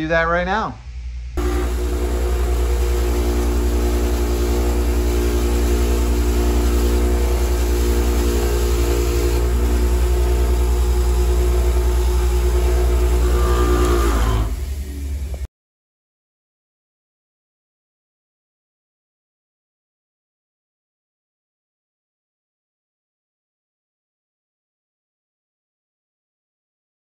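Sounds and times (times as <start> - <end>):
metal scrubbed on wire wheel: 1.4 - 14.9
bench grinder motor humming: 1.4 - 15.4.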